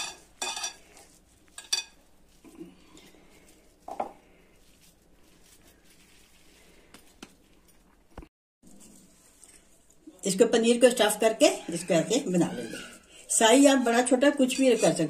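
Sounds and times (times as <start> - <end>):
hands squishing mashed food: 0.0 - 7.6.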